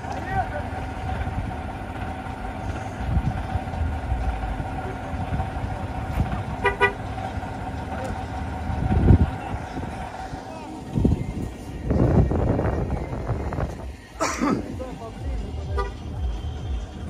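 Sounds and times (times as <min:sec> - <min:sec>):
double horn toot: 0:06.5 - 0:07.2, 0:15.6 - 0:16.9.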